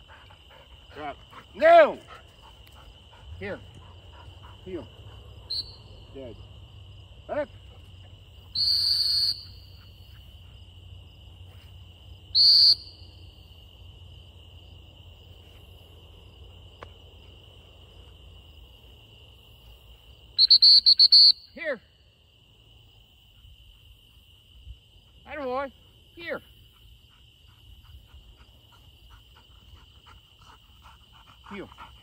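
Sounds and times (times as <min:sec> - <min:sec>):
crickets singing: 0:00.0 - 0:32.0
dog-training whistle blasts: 0:05.5 - 0:06.0, 0:08.5 - 0:09.8, 0:12.3 - 0:13.1, 0:20.4 - 0:21.8.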